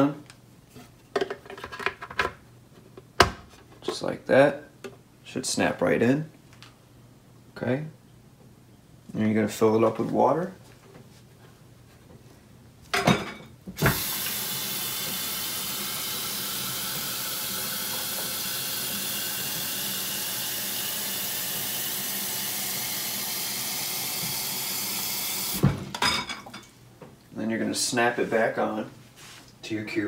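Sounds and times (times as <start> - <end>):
kitchen tap running: 13.8 - 25.7.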